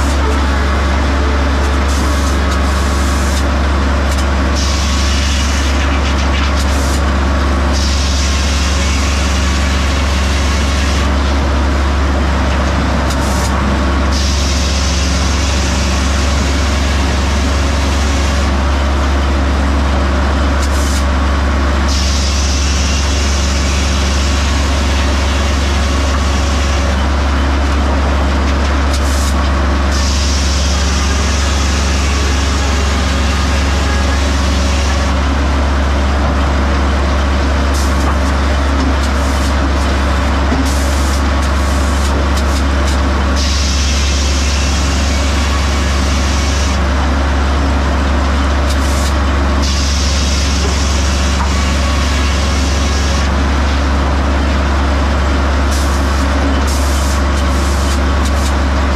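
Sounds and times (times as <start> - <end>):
sawmill drone: 0.0 - 58.9
saw hissing through wood: 4.5 - 5.8, 7.7 - 11.0, 14.1 - 18.4, 21.9 - 26.9, 29.0 - 35.2.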